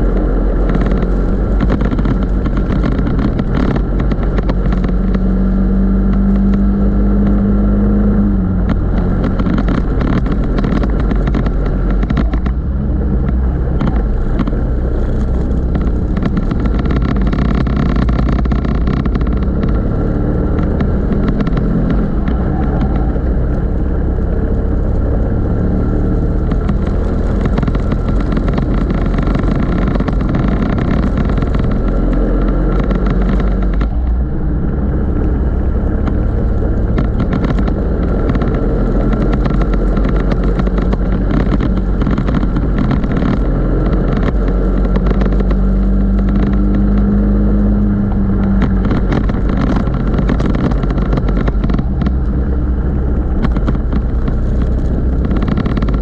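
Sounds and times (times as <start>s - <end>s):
go-kart engine racing: 0.0s - 56.0s.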